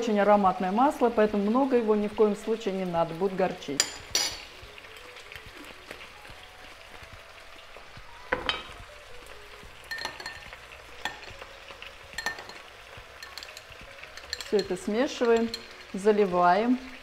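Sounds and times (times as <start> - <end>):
food sizzling in a pan: 0.0 - 17.0
metal spoon clinking glass bowl: 3.8 - 4.5, 9.9 - 11.5, 12.1 - 15.9.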